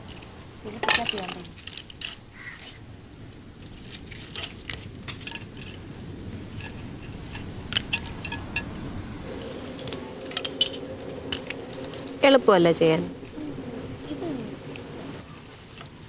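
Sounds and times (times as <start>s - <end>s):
mussel shells clinking on pots: 0.0s - 2.8s, 4.1s - 13.4s
faint steady hum: 5.3s - 15.4s.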